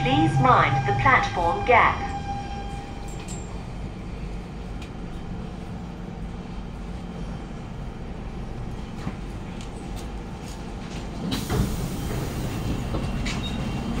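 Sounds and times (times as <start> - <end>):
train doors opening: 0.0 - 4.0, 8.9 - 14.0
metro train interior hum: 0.0 - 14.0.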